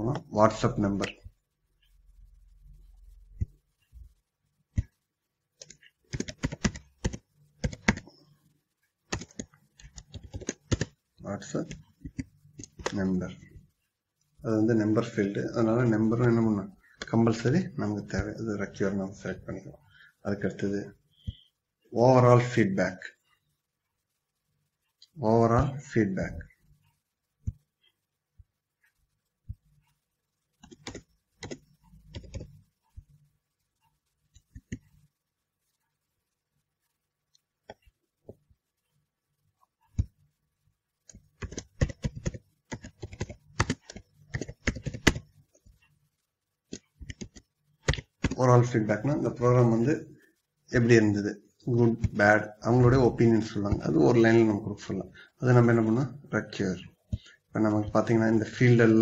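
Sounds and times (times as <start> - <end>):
computer keyboard typing: 5.6 - 8.2, 9.1 - 13.1, 30.6 - 32.6, 34.4 - 34.9, 41.1 - 45.3, 46.7 - 48.4.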